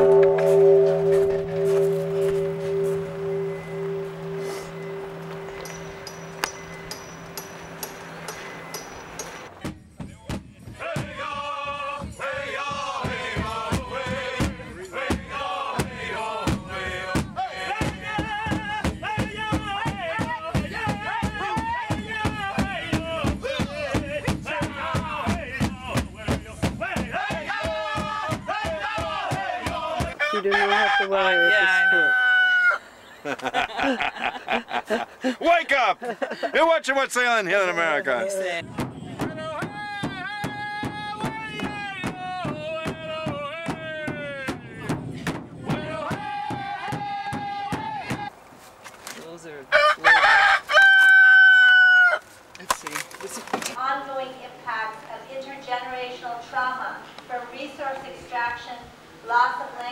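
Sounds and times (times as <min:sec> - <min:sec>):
hand drum beating: 0:00.0 - 0:08.9, 0:17.2 - 0:30.2, 0:38.6 - 0:48.2
people singing: 0:10.3 - 0:30.2, 0:38.8 - 0:48.2
rooster crowing: 0:30.1 - 0:32.9, 0:49.7 - 0:52.3.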